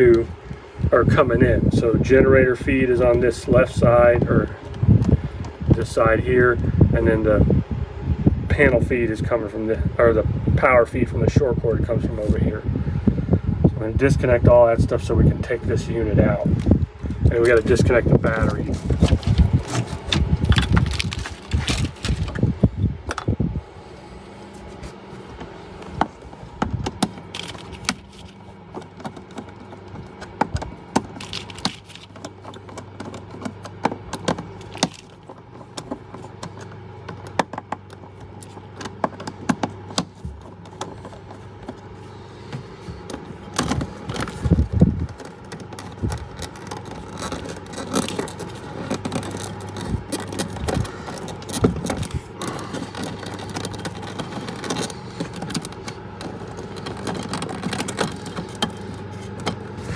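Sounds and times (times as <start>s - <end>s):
steady low hum: 0.0s - 59.9s
screwdriver clicking and scraping wires: 16.6s - 22.5s, 26.0s - 41.8s, 43.1s - 59.9s.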